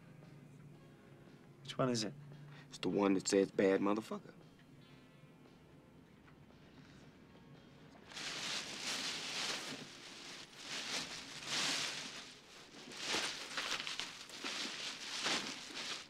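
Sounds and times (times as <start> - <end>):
bag rustling: 8.1 - 16.0.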